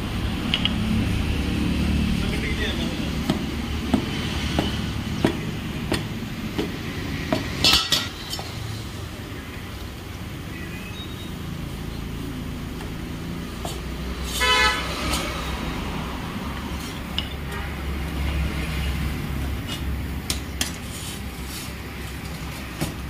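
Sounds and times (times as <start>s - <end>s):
vehicle horn toot: 14.3s - 14.9s.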